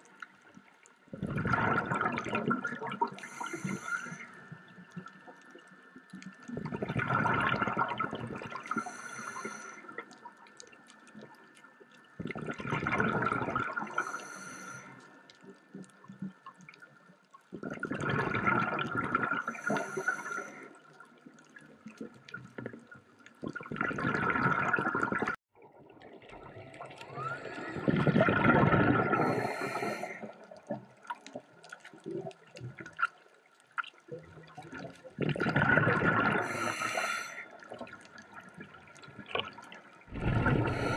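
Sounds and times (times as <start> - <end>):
exhaust bubbles burbling: 1.1 - 3.8, 6.5 - 8.8, 12.2 - 14.0, 17.5 - 19.5, 23.4 - 33.0, 34.2 - 40.9
diver breathing through regulator: 3.2 - 4.4, 8.7 - 9.9, 13.8 - 15.0, 19.4 - 20.8, 27.2 - 30.4, 36.4 - 37.6, 40.1 - 40.9.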